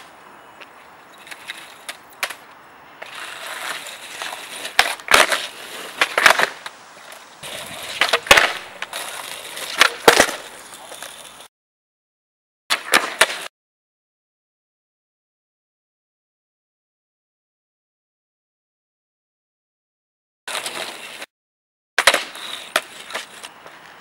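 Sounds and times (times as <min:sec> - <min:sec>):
skateboard wheels rolling on asphalt: 0:00.0 - 0:11.5, 0:12.7 - 0:13.5, 0:20.5 - 0:21.3, 0:22.0 - 0:24.0
skateboard clacks and slaps: 0:01.2 - 0:06.7, 0:07.4 - 0:11.1, 0:12.7 - 0:13.5, 0:22.0 - 0:24.0.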